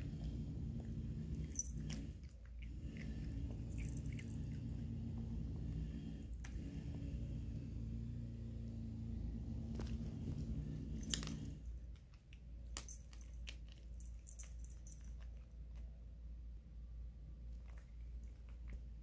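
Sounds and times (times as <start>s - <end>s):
low hum: 0.0s - 19.0s
cat crunching dry kibble: 1.3s - 4.8s, 9.7s - 15.9s, 17.4s - 19.0s.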